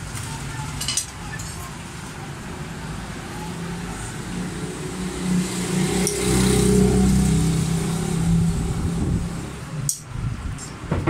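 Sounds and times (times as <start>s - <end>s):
street noise: 0.0s - 11.0s
vehicle engine running: 3.6s - 9.8s.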